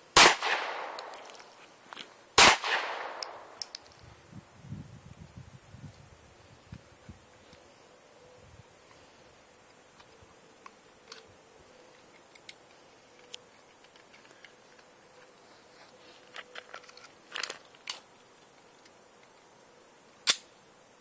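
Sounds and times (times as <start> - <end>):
pistol shot: 0.2 - 1.2, 2.4 - 3.6.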